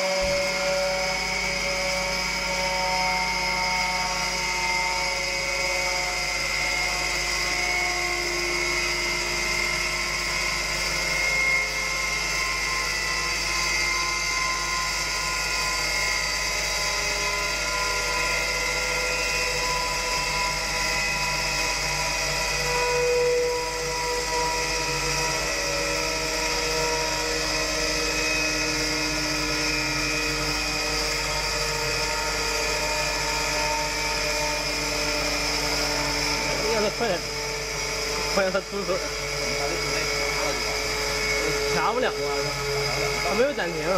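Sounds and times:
centrifuge whining: 0:00.0 - 0:43.9.

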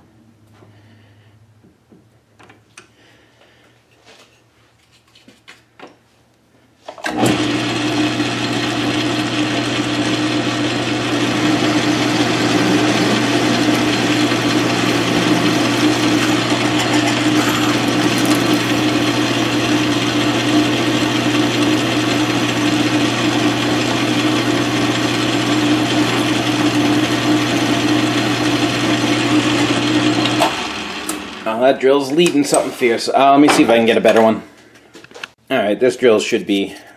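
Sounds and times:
lathe humming: 0:07.1 - 0:32.8
drill cutting metal: 0:07.2 - 0:31.4.

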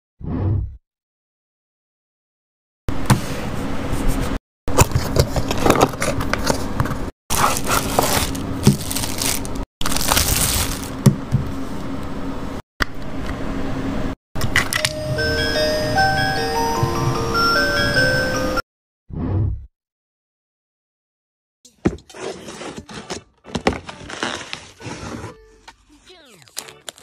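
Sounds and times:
plastic bag crinkling: 0:07.3 - 0:11.1, 0:26.3 - 0:27.0
chiming bell-like melody: 0:14.8 - 0:18.6.

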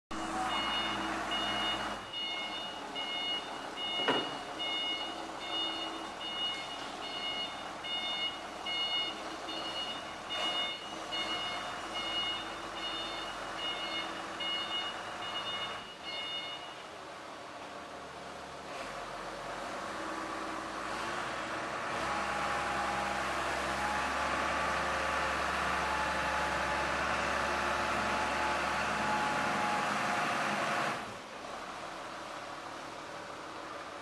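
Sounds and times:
diesel forklift running: 0:00.1 - 0:34.0
short high warning beeps: 0:00.5 - 0:16.8
knock: 0:04.0 - 0:04.4.

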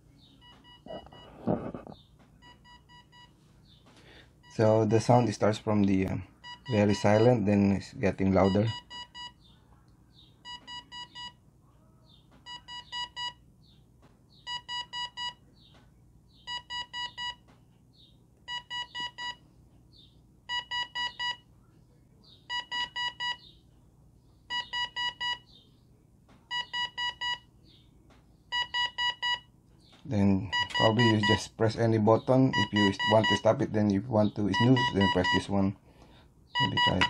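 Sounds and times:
alarm clock short high beeps: 0:20.5 - 0:21.4, 0:30.5 - 0:31.4, 0:32.5 - 0:33.4, 0:34.5 - 0:35.5, 0:36.6 - 0:37.0.

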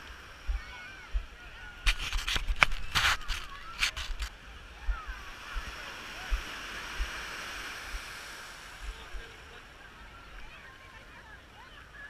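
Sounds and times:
distant crowd voices: 0:00.0 - 0:12.0
small waves washing on sand: 0:00.0 - 0:12.0
camera housing knocks and rubs: 0:01.8 - 0:04.3.

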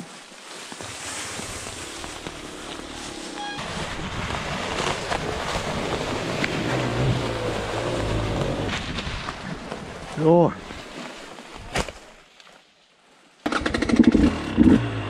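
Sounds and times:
dirt bike engine at low revs: 0:00.8 - 0:09.8, 0:13.4 - 0:15.0.

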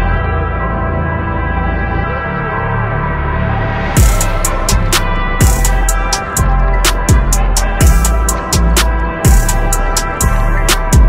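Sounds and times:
electronic music with held chords: 0:00.0 - 0:11.0
deep kick drum: 0:04.0 - 0:06.5, 0:07.1 - 0:09.6, 0:10.2 - 0:11.0
sharp percussion hits: 0:04.0 - 0:11.0.

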